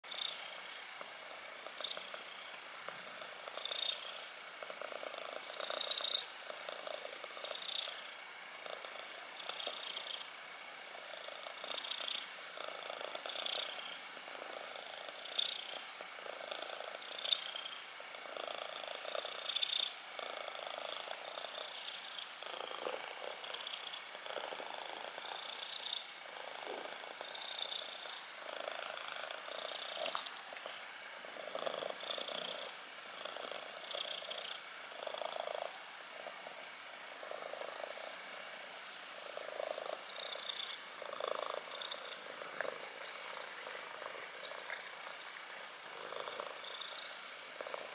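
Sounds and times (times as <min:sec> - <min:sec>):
kitten purring: 0:00.1 - 0:08.0, 0:08.6 - 0:10.3, 0:11.0 - 0:36.6, 0:37.2 - 0:38.2, 0:39.2 - 0:47.9.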